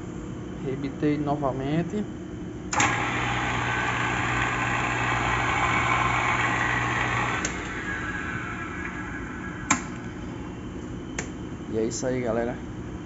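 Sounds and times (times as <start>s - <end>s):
blender motor running: 2.8s - 9.6s
switch click: 9.7s - 10.1s.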